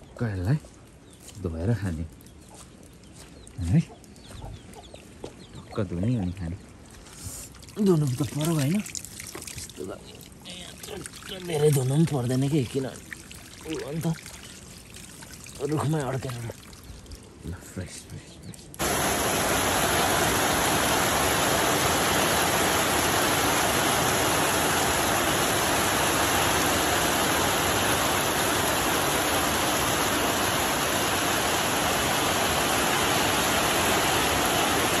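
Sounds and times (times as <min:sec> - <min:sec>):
heavy rain pouring: 0:09.5 - 0:14.6, 0:18.8 - 0:35.0.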